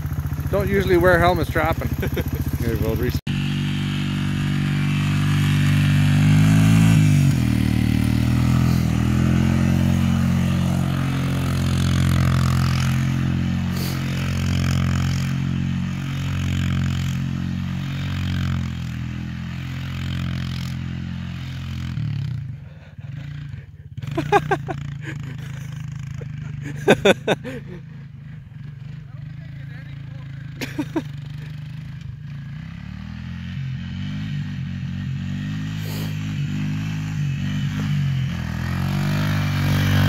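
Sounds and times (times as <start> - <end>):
quad bike engine running hard: 0.0 - 40.0.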